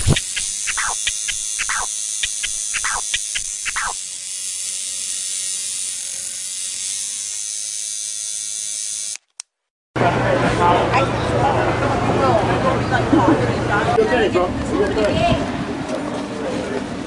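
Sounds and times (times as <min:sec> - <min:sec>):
falling scratch-like sweeps: 0:00.0 - 0:04.0
quick clicks: 0:00.0 - 0:04.0.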